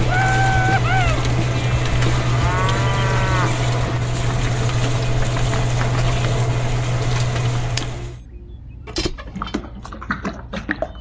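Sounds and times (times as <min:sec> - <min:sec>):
small mixer motor humming rattly: 0:00.0 - 0:08.2
cow mooing: 0:02.0 - 0:03.9.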